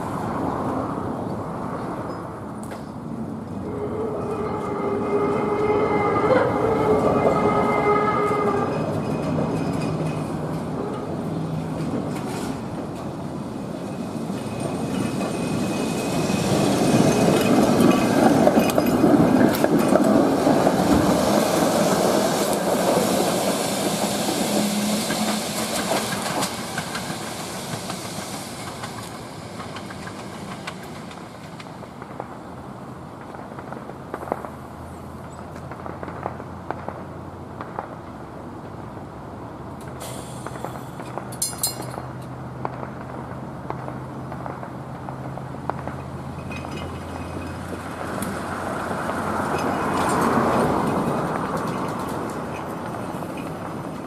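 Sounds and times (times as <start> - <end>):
streetcar rolling rumble: 0.0 - 54.0
wheels clattering over track: 3.8 - 32.4, 39.9 - 54.0.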